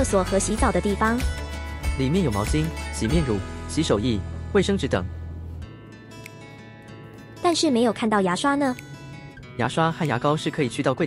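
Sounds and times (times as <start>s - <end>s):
background guitar music: 0.0s - 11.0s.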